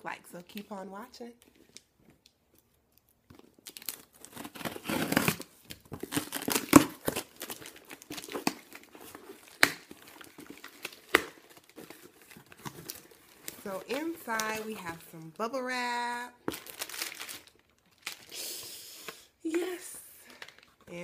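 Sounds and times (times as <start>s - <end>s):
packaging crinkling: 2.6s - 15.2s, 16.4s - 18.4s, 20.2s - 21.0s
packing tape tearing: 3.4s - 14.8s, 16.5s - 18.6s.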